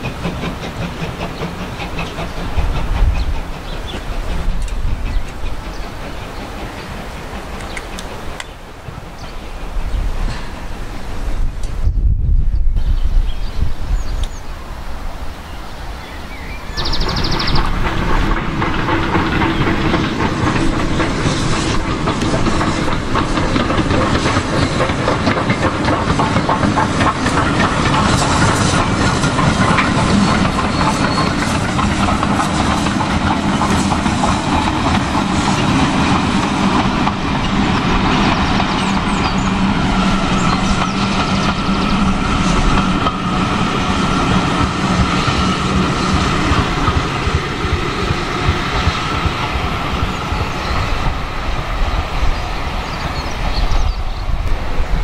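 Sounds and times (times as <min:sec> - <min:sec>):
train wheels clickety-clacking: 0:00.0 - 0:11.8, 0:16.6 - 0:55.0.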